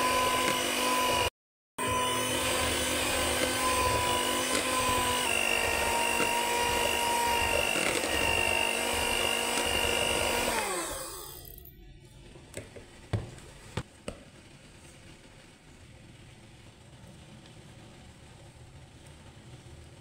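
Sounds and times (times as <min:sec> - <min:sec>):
electric hand mixer whining: 0:00.0 - 0:11.6.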